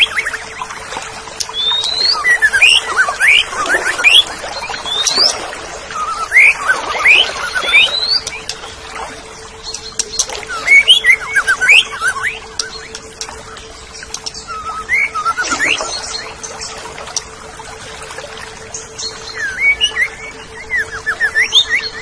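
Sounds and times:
bird singing whistled notes: 0:01.4 - 0:08.6, 0:09.6 - 0:17.3, 0:18.7 - 0:22.0.

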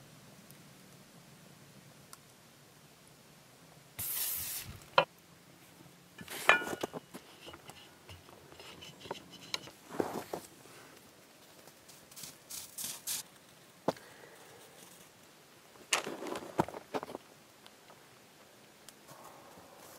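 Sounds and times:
aerosol cooking spray hiss: 0:04.0 - 0:05.0
metal kitchenware clattering: 0:06.2 - 0:07.7
dough being worked: 0:06.2 - 0:10.4.

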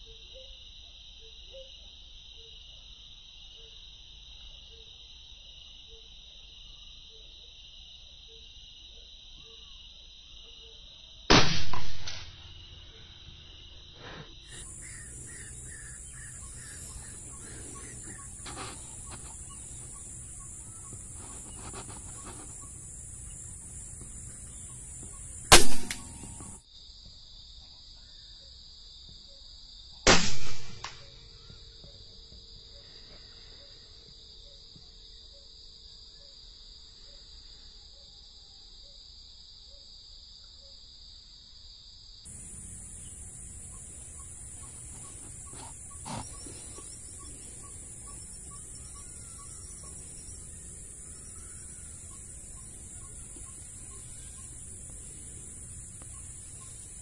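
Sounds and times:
insects chirring: 0:00.0 - 0:30.0, 0:39.6 - 0:57.0
loud sharp bangs: 0:14.5 - 0:26.6.

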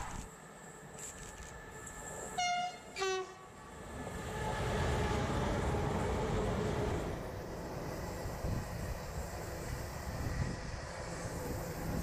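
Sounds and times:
freight train rumble passing: 0:01.6 - 0:12.0
two-tone train horn blasts: 0:02.4 - 0:03.6.

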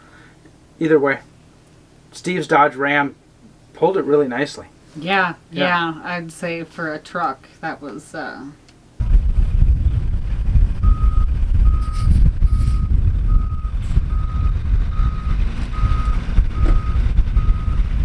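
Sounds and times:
heavy low rumble: 0:09.0 - 0:18.0
reversing alarm beeps: 0:10.8 - 0:17.9.

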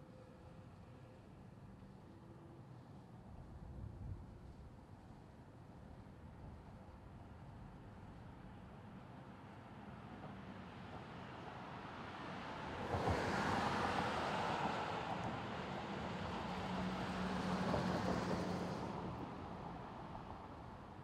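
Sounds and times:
cars passing on street: 0:11.7 - 0:20.8.

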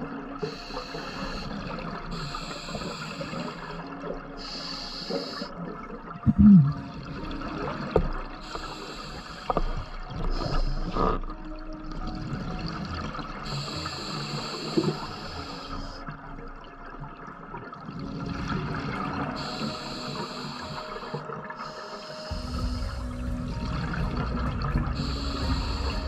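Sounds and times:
regulator hissing inhalations: 0:00.4 - 0:05.6, 0:08.4 - 0:11.2, 0:13.5 - 0:16.0, 0:19.4 - 0:23.0, 0:25.0 - 0:26.0
bubbling exhalations: 0:06.2 - 0:08.6, 0:10.1 - 0:11.4.

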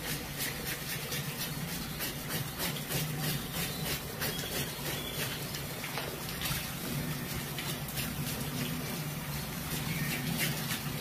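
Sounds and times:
fish scales rasping off: 0:00.0 - 0:05.8
running tap water: 0:00.0 - 0:11.0.

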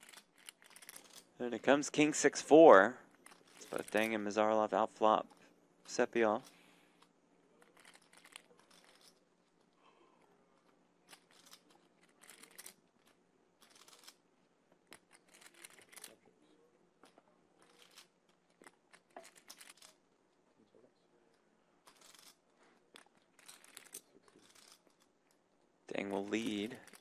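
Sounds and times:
poker chips clicking and clattering: 0:00.0 - 0:01.3, 0:03.1 - 0:04.2, 0:05.3 - 0:09.8, 0:10.6 - 0:14.2, 0:14.9 - 0:16.2, 0:17.0 - 0:20.0, 0:21.8 - 0:25.1, 0:26.2 - 0:27.0.

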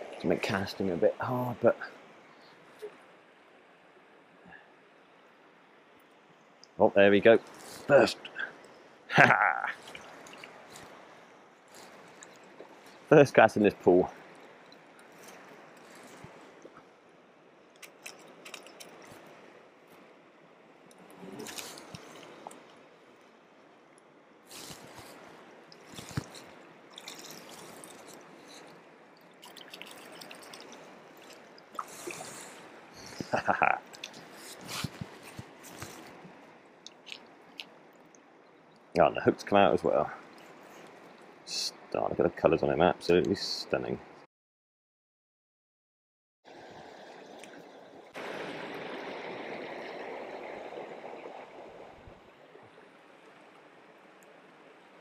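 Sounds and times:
stream running over stones: 0:00.0 - 0:43.9, 0:46.5 - 0:55.0
river rushing over stones: 0:24.5 - 0:37.4, 0:46.5 - 0:52.0
fish splashing: 0:25.8 - 0:32.8.

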